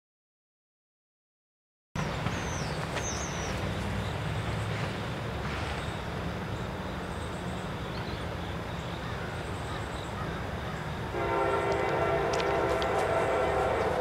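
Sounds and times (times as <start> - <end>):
locomotive air horn chord: 11.1 - 14.0.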